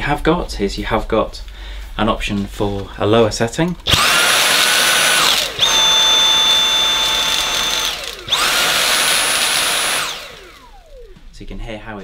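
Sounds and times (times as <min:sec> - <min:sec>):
vacuum motor whine: 0:03.9 - 0:11.4.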